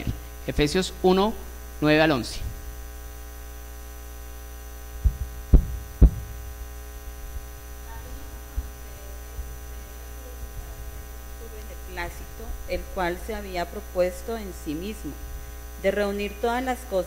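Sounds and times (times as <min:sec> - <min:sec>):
electrical mains hum: 0:00.0 - 0:17.0
microphone handling thumps: 0:02.3 - 0:03.1, 0:04.8 - 0:11.5, 0:12.2 - 0:13.1.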